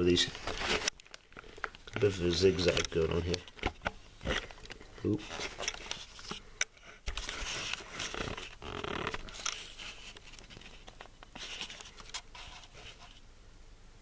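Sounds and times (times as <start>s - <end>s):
plastic sheeting crinkling: 0.0s - 6.4s.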